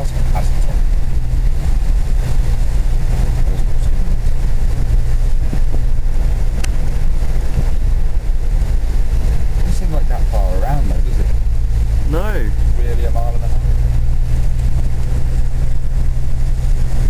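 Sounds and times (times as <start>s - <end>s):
car engine drone: 0.0s - 17.0s.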